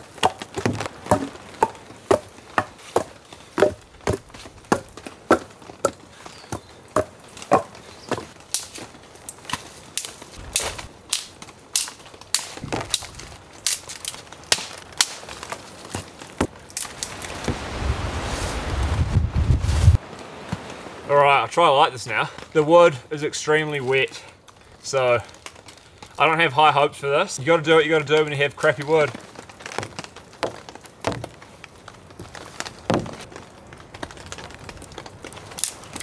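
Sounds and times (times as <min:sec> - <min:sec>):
twigs rustling: 0:00.0 - 0:20.9, 0:27.9 - 0:36.0
sticks snapping: 0:04.7 - 0:17.4, 0:35.4 - 0:36.0.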